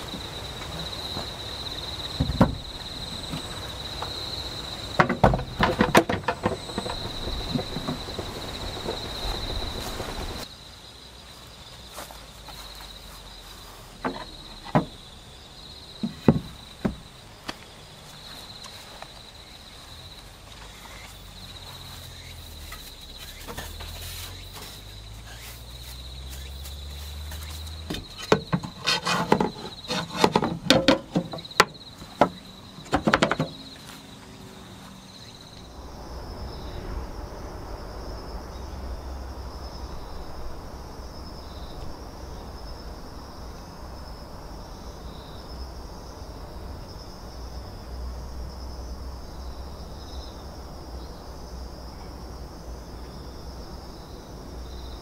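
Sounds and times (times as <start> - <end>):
insects trilling: 0.0 - 55.0
wooden board knocking on wood: 2.2 - 3.4, 5.0 - 8.4, 14.0 - 15.0, 16.0 - 17.0, 27.8 - 33.6.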